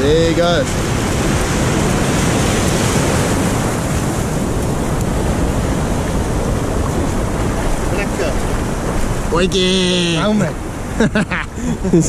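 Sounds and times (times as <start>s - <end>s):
surf washing over shore: 0.0s - 12.0s
wind buffeting microphone: 0.0s - 12.0s.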